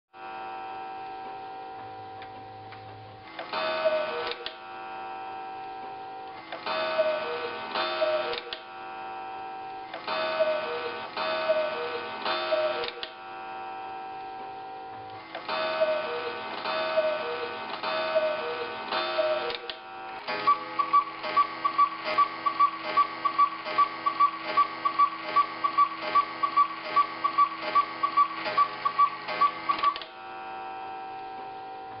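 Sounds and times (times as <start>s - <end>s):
cuckoo clock bird calls: 3.7s - 4.4s, 6.8s - 8.5s, 10.2s - 13.0s, 15.6s - 19.6s, 20.3s - 30.0s
clock ticking: 15.8s - 30.1s.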